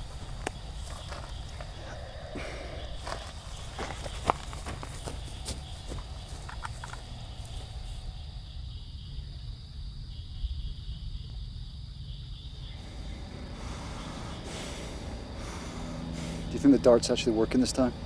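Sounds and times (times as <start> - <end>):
footsteps in dry grass: 0.0 - 8.0
insect drone: 0.0 - 18.0
steady low rumble: 0.0 - 18.0.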